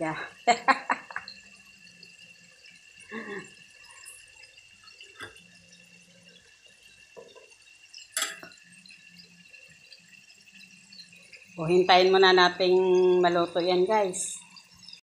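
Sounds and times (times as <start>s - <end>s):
meat frying bubbling and popping: 0.0s - 15.0s
spatula clattering against pan: 8.2s - 8.5s.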